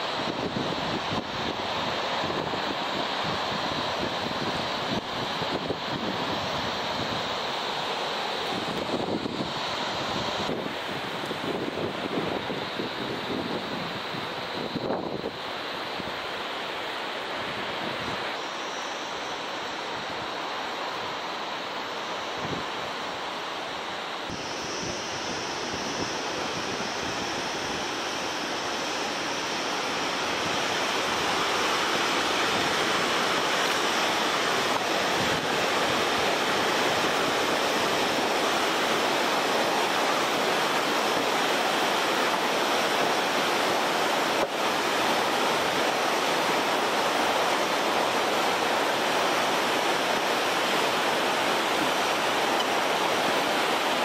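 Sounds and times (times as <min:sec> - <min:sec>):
river rushing over rapids: 0:00.0 - 0:54.0.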